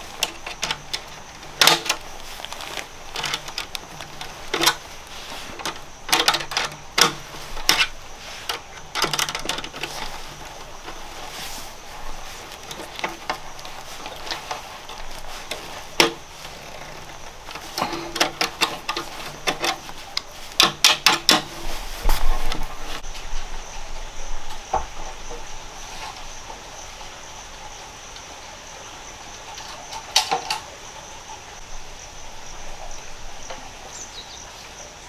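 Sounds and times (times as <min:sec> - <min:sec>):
sharp clicks and knocks: 0:00.0 - 0:11.3, 0:12.2 - 0:23.0.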